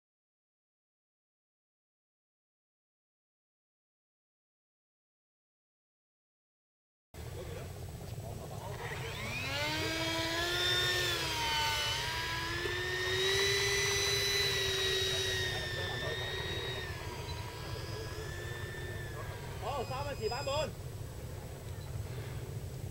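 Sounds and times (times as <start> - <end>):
electric ducted fan whine: 7.2 - 22.9.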